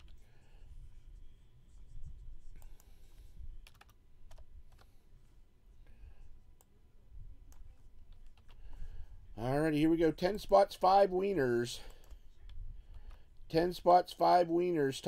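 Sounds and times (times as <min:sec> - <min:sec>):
low background hum: 0:00.0 - 0:15.0
typing on computer keyboard: 0:03.6 - 0:04.9, 0:07.5 - 0:08.6.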